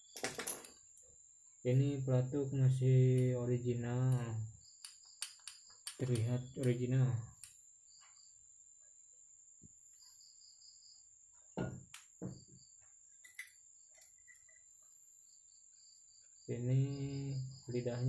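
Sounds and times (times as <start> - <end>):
faint high chirping: 12.2 - 18.0.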